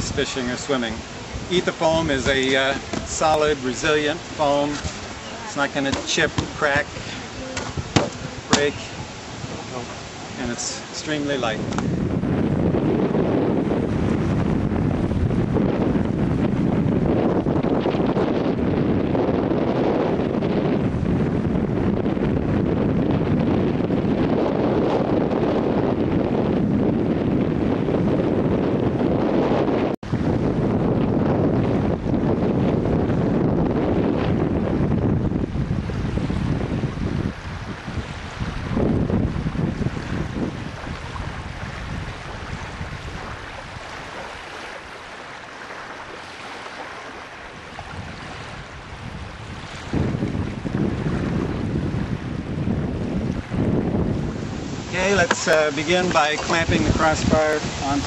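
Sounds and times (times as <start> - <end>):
choppy lake water: 0.0 - 58.0
strong wind on microphone: 0.0 - 58.0
wind hiss: 49.0 - 58.0.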